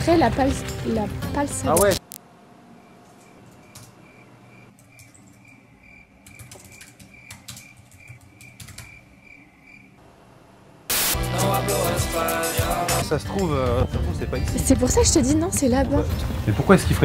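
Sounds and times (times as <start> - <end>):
cricket chirping: 2.7 - 10.0.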